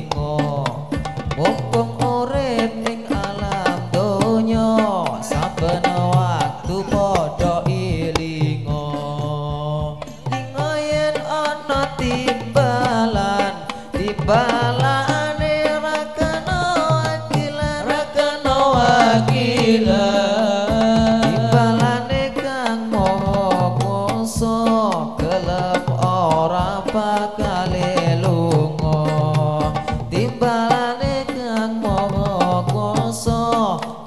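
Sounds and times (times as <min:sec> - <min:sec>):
frame drums: 0:00.0 - 0:34.0
men singing devotional melody: 0:00.0 - 0:34.0.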